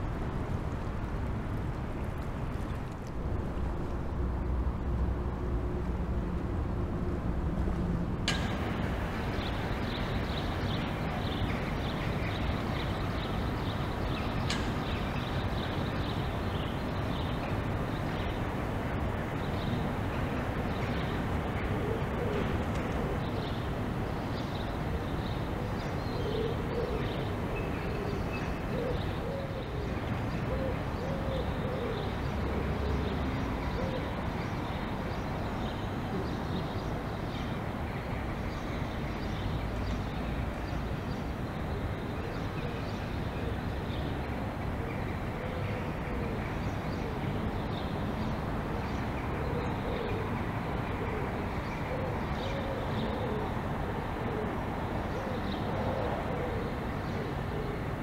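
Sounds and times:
distant traffic hum: 0.0s - 58.0s
pigeon cooing: 21.6s - 23.4s, 26.2s - 27.3s, 30.5s - 34.2s, 49.4s - 54.6s, 55.2s - 57.9s.

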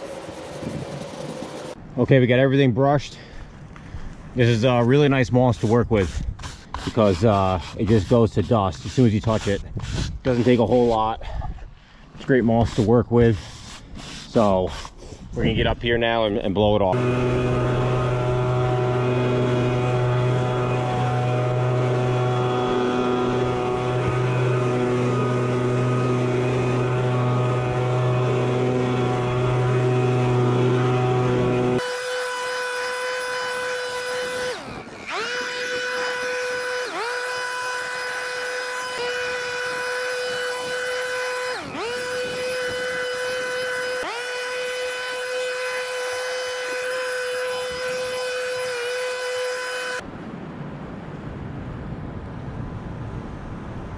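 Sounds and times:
leaf blower running: 0.0s - 1.8s, 16.9s - 50.0s.

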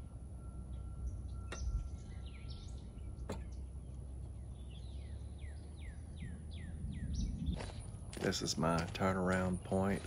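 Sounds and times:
birds chirping: 0.0s - 10.0s
low steady rumble: 0.0s - 10.0s.

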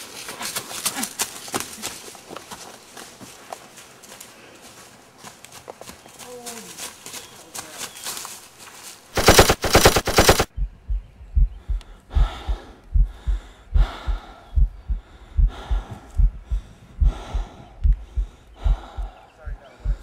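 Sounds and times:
machine-gun fire: 9.2s - 10.5s
heartbeat-like thumping: 9.2s - 19.2s, 19.8s - 20.0s
heavy breathing: 11.6s - 20.0s.

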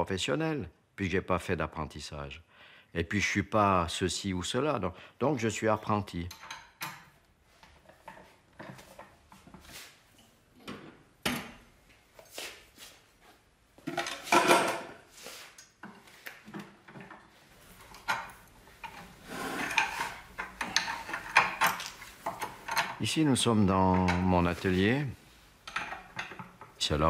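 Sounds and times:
metal tools clinking and scraping: 6.2s - 7.2s, 15.6s - 23.1s, 25.6s - 26.8s.

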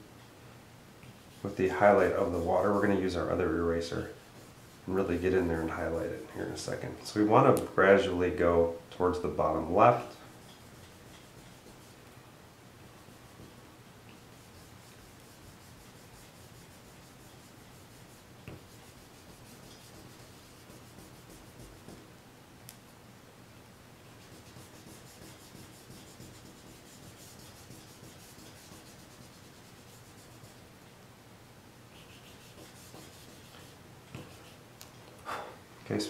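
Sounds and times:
eraser rubbing on paper: 1.2s - 6.0s, 10.1s - 12.0s, 14.2s - 22.0s, 24.0s - 30.7s, 31.9s - 34.7s.

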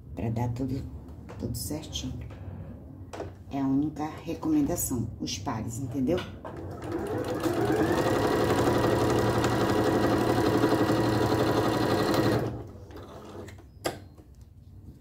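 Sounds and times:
sewing machine stitching: 6.5s - 13.6s.

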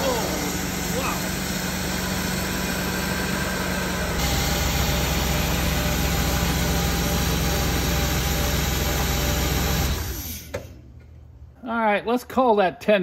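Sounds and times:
car engine idling: 0.0s - 10.2s.

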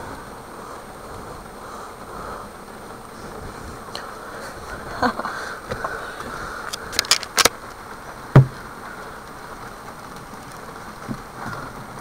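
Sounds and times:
sharp clicks or rattles: 6.7s - 7.6s
loud thump: 8.4s - 8.6s.

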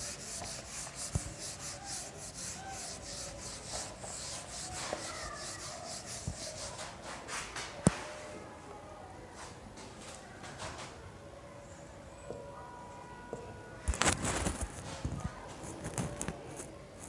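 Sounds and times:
eraser wiping whiteboard: 0.0s - 7.2s.

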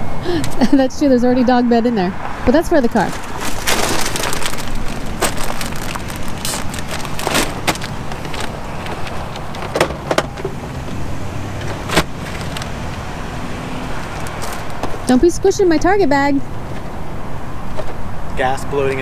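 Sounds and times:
steady low rumble: 0.0s - 13.2s
packages and bags knocking and rustling: 2.9s - 10.6s.

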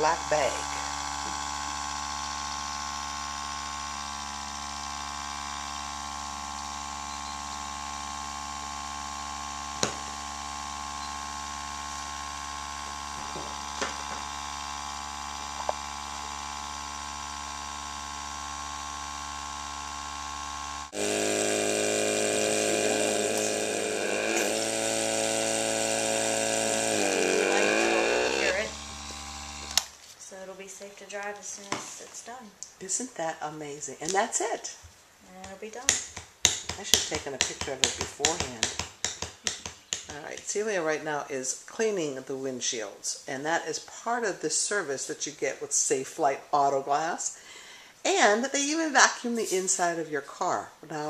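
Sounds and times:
small electric compressor running: 0.0s - 29.9s
machine hum with several tones: 0.2s - 29.9s.

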